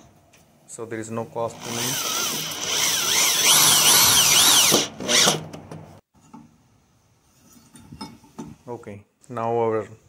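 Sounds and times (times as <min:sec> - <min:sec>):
power drill driving a screw: 0:01.5 - 0:05.5.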